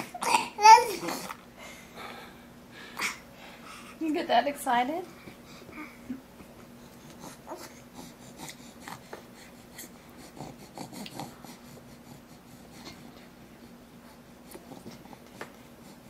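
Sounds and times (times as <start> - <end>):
baby eating clicks and smacks: 14.5 - 15.6.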